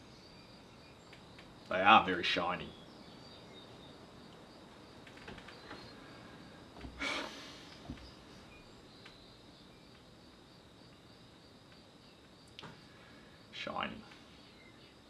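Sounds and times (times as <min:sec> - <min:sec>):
insects chirring: 0:00.0 - 0:15.0
short breathy noise: 0:06.0 - 0:07.9.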